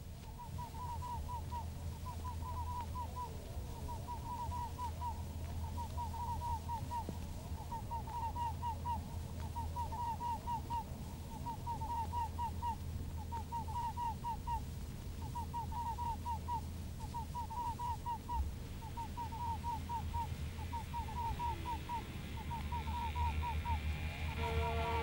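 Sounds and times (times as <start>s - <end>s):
steady low hum: 0.0s - 25.0s
high squeaky calls: 0.3s - 14.6s, 15.2s - 25.0s.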